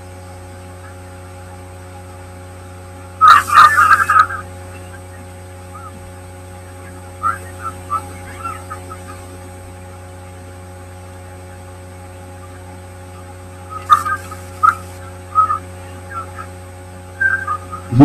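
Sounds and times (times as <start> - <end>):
mains hum: 0.0 - 18.0.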